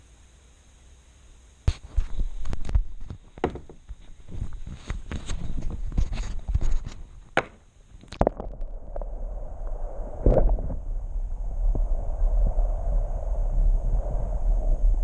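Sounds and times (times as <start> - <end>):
camera knocks and rubbing: 1.7 - 7.6
low underwater rumble: 8.2 - 15.0.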